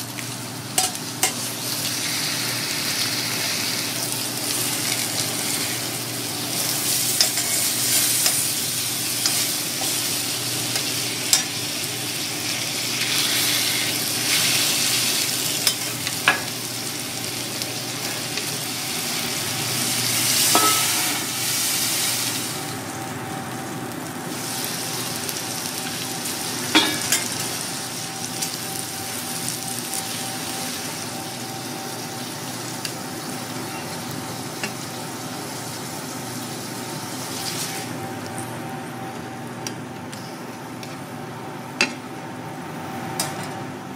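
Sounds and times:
meat sizzling on a griddle: 0:00.0 - 0:22.8, 0:23.7 - 0:38.0.

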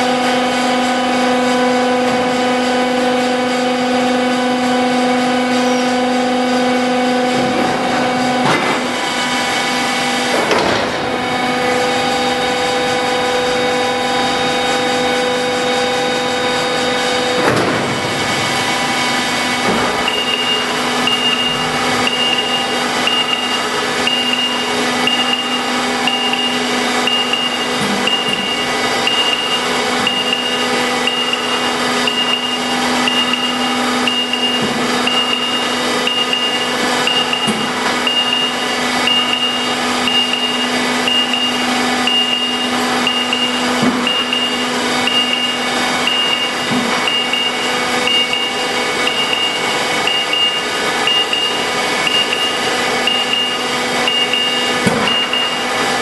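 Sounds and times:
mechanical hoist hum: 0:00.0 - 0:56.0
high beep: 0:20.0 - 0:55.7.

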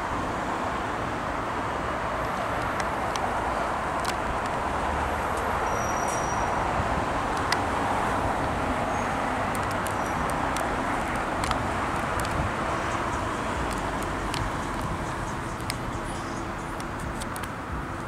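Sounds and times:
road traffic hiss: 0:00.0 - 0:18.0
faint clicks: 0:07.3 - 0:07.6, 0:09.5 - 0:17.6.

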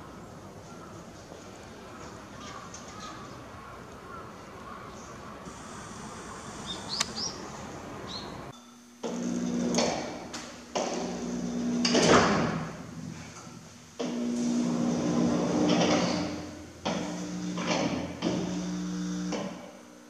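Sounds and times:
bird chirps: 0:06.6 - 0:07.5.

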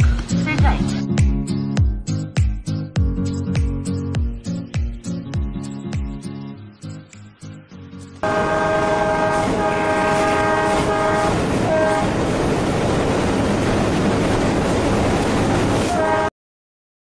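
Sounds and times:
locomotive horn blasts: 0:08.2 - 0:12.2, 0:15.8 - 0:16.3
train running noise: 0:08.2 - 0:16.3.

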